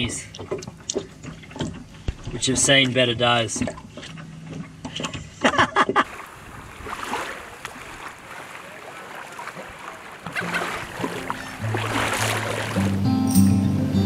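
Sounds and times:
wind: 0.0s - 14.0s
small waves washing onto shore: 6.0s - 13.1s
music: 11.6s - 14.0s.

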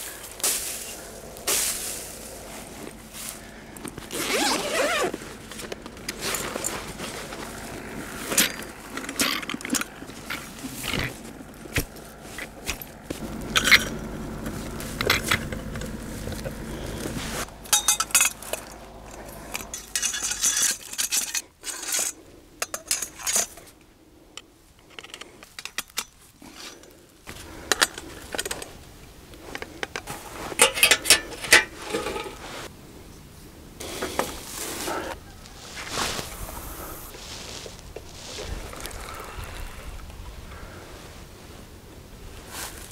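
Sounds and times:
metal gear clinking and scraping: 4.2s - 23.7s, 30.1s - 32.5s.

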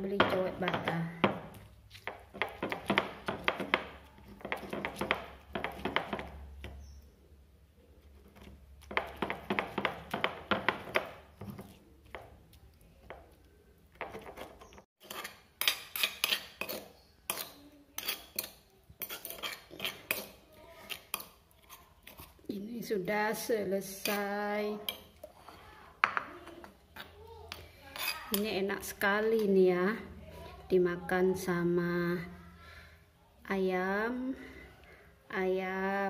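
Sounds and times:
stone pestle grinding in mortar: 0.2s - 6.7s, 8.2s - 12.3s, 14.0s - 22.4s
metal spoon scraping stone bowl: 14.1s - 22.4s, 23.9s - 25.3s, 27.9s - 28.7s.

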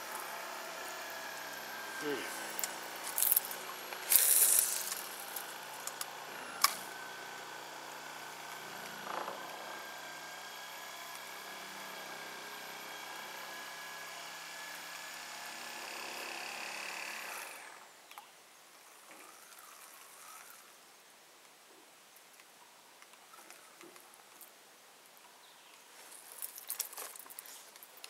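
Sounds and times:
small motor humming and whining: 0.0s - 18.2s, 18.8s - 21.0s.

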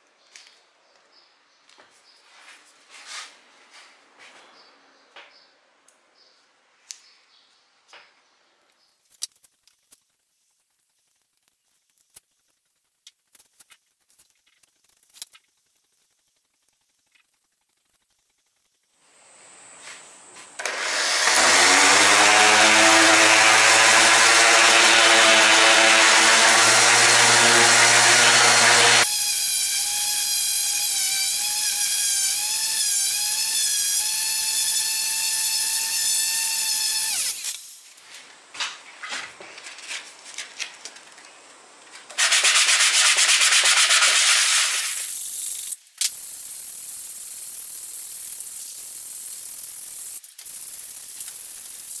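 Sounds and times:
electric orbital sander whine: 19.1s - 37.6s
sanding block rasping on wood: 42.2s - 45.0s.

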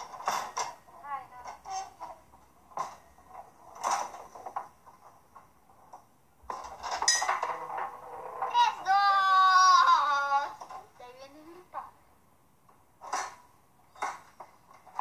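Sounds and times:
foosball rods sliding and spinning: 0.0s - 9.2s, 13.0s - 15.0s
foosball ball clacking: 6.5s - 8.6s.

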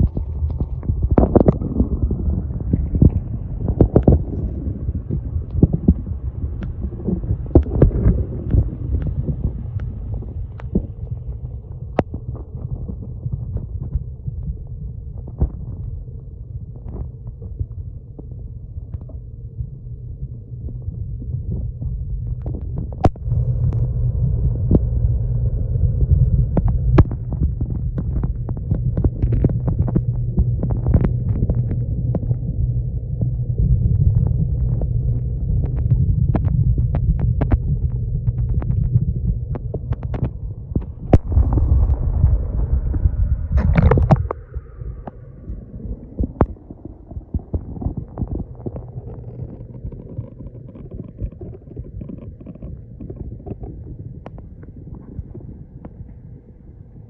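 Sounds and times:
small underwater clicks: 0.0s - 23.9s, 25.8s - 57.0s
muffled underwater hum: 0.0s - 57.0s.

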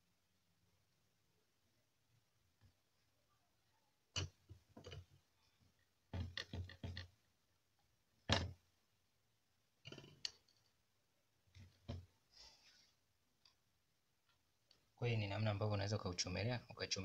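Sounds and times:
clicks and knocks on wooden bench: 6.1s - 7.1s, 8.3s - 8.6s, 11.6s - 12.1s.

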